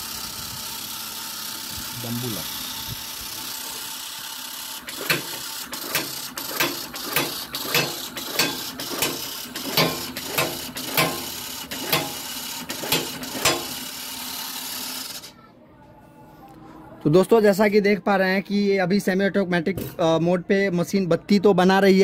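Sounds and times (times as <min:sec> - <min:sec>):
machine whirring: 0:00.0 - 0:15.3
machine clacking: 0:04.9 - 0:13.9.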